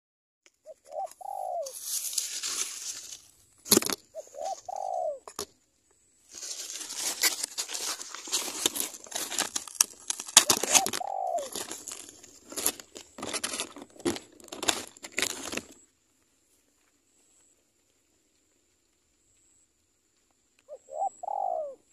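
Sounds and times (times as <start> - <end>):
crackling and rustling noise: 0.4 - 20.8
dove cooing: 0.6 - 1.9, 4.1 - 5.5, 10.4 - 12.2, 20.7 - 21.9.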